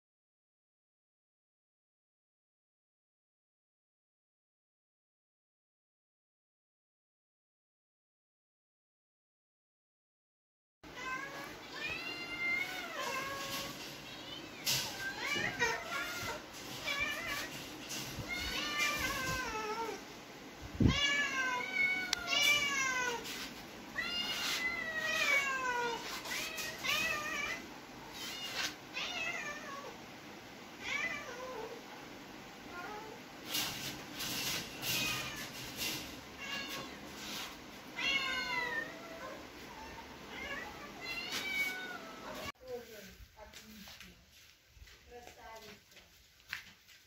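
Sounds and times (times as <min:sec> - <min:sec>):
cat meowing: 0:11.0 - 0:17.6, 0:18.2 - 0:20.0, 0:20.8 - 0:23.3, 0:24.0 - 0:30.0, 0:34.7 - 0:37.1, 0:38.0 - 0:42.5.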